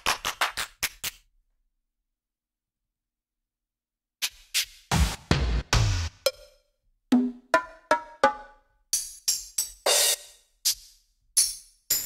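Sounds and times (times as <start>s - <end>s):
electronic cymbal and hi-hat hits: 9.0s - 12.0s.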